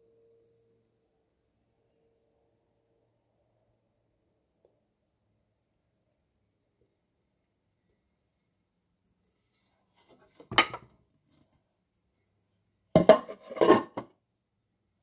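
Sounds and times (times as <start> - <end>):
tableware clatter: 10.4 - 10.9, 13.0 - 14.1
plastic cover knocking on plate: 13.0 - 14.1.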